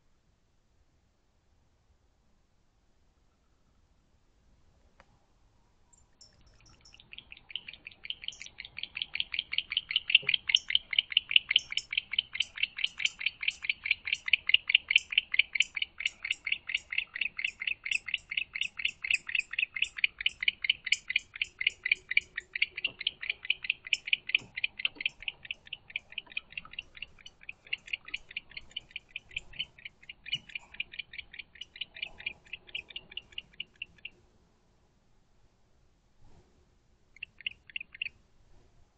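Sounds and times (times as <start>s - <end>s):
owl chittering: 6.3s - 34.2s, 37.2s - 38.2s.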